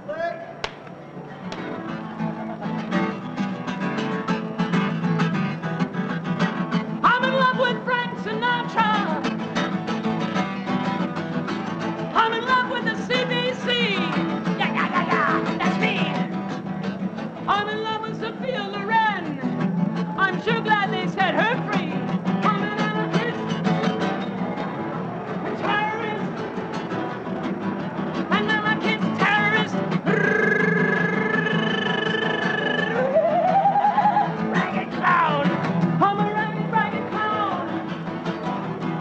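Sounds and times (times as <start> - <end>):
strummed guitar: 0.0 - 39.0
person singing: 28.3 - 37.7.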